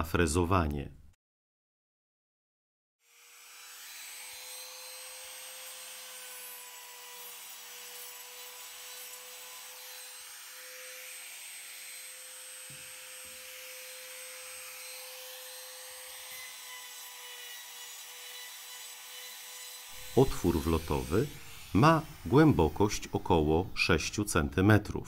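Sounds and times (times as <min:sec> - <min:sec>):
router high whine: 0:19.9 - 0:24.2.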